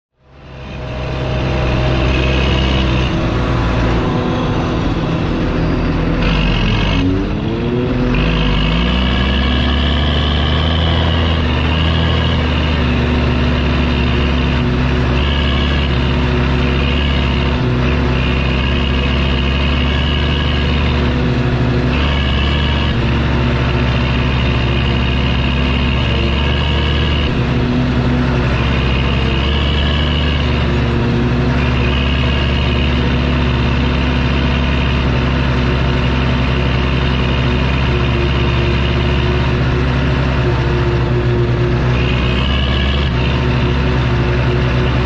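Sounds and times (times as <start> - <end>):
tractor diesel engine under load: 0.0 - 45.0.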